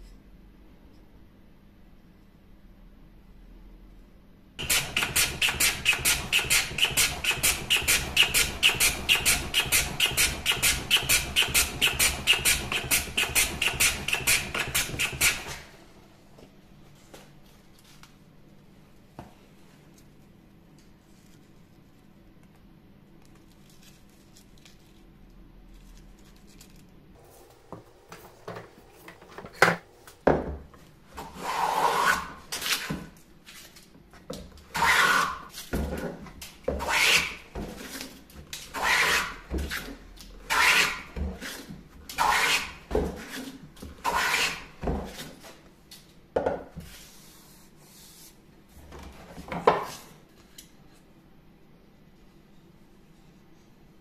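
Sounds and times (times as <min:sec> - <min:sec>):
hand plane hissing cuts: 0:31.2 - 0:32.4, 0:34.7 - 0:35.5, 0:36.8 - 0:38.0, 0:38.7 - 0:39.4, 0:40.5 - 0:41.6, 0:42.2 - 0:43.4, 0:44.0 - 0:44.7.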